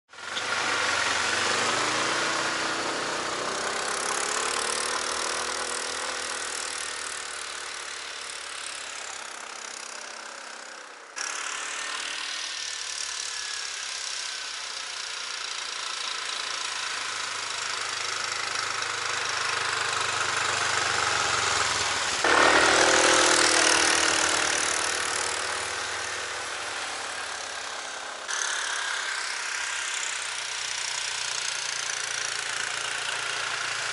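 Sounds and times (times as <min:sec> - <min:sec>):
snowmobile engine running: 0:00.2 - 0:08.9, 0:16.2 - 0:28.4.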